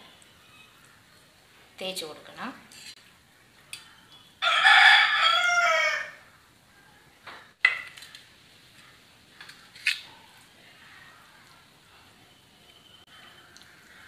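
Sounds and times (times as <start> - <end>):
rooster crowing: 4.4 - 6.3.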